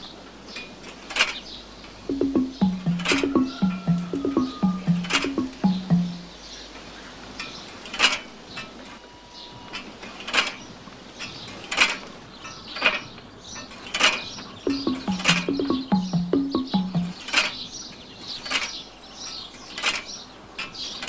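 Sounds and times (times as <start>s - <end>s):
bass line: 2.1s - 6.3s, 14.7s - 17.2s
sharp high percussive hits: 2.1s - 6.3s, 14.7s - 17.2s.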